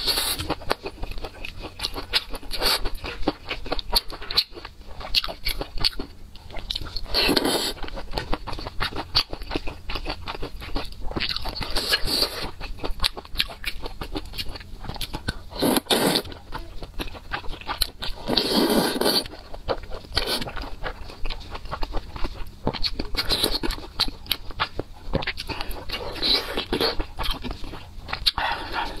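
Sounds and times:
wet chewing and mouth clicks: 0:00.0 - 0:29.0
slurping: 0:15.6 - 0:16.4, 0:18.3 - 0:19.4.

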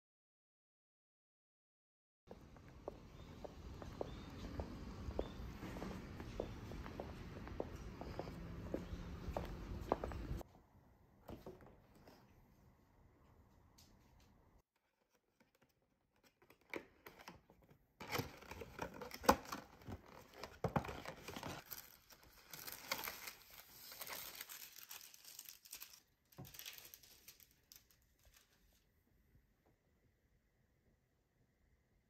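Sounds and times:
paper rustling and crinkling: 0:18.0 - 0:28.8.

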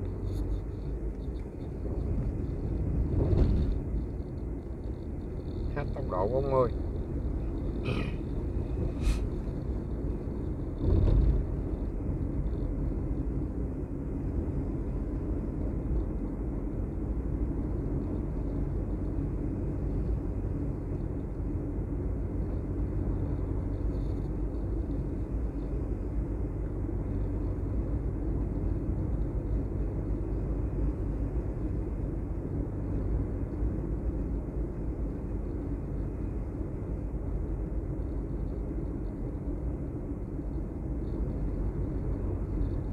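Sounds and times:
vehicle rumbling along road: 0:00.0 - 0:42.9.

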